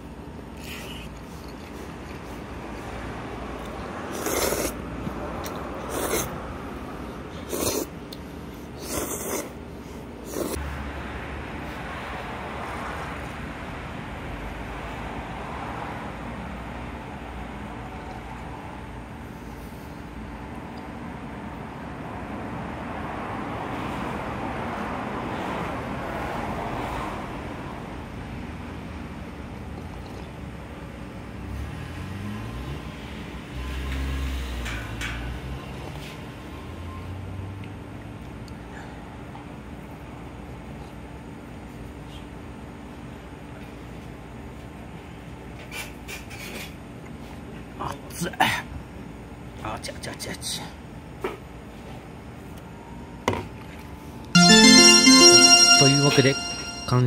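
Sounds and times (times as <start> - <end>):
person slurping noodles: 4.1 - 4.8, 5.9 - 6.4, 7.4 - 7.9, 8.8 - 9.6, 10.2 - 10.6.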